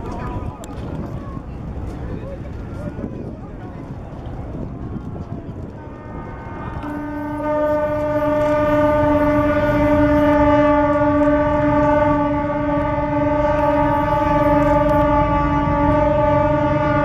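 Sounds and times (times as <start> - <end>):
ship's horn blast: 5.8 - 17.0.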